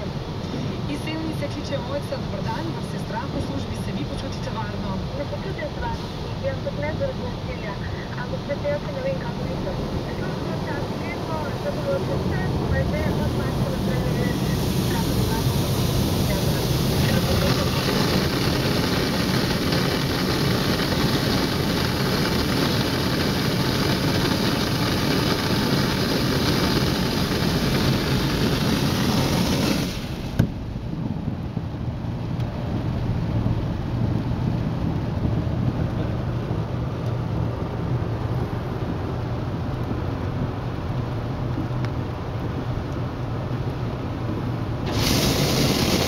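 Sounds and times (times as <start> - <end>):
water jets spraying car: 0.0 - 46.0.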